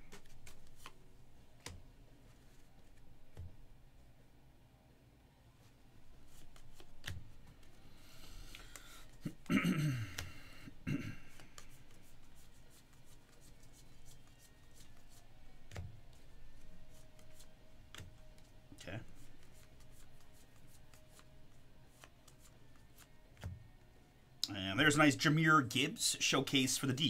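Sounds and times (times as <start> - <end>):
trading cards rustling and clicking: 0.0 - 1.0, 6.2 - 9.4, 11.3 - 21.3.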